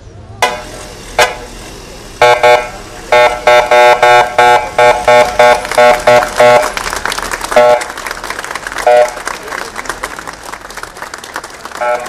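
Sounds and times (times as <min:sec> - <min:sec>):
vehicle horn beeping: 0:02.2 - 0:06.8, 0:07.6 - 0:07.9, 0:08.8 - 0:09.2, 0:11.8 - 0:12.0.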